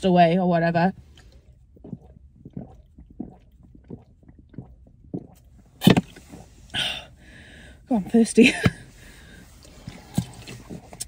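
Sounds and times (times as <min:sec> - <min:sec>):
person gulping water: 0:01.2 - 0:07.4.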